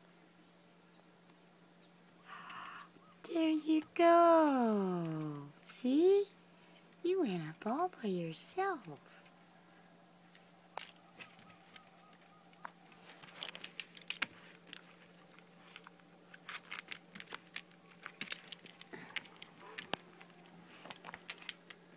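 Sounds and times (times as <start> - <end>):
faint steady hum: 0.0 - 21.9
fingers clicking and rustling on phone: 10.3 - 21.9.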